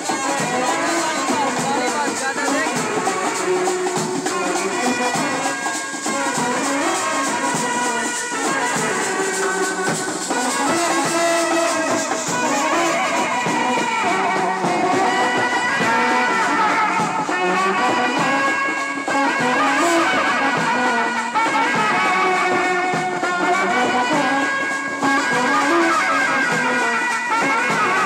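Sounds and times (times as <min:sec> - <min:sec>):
brass band playing: 0:00.0 - 0:28.0.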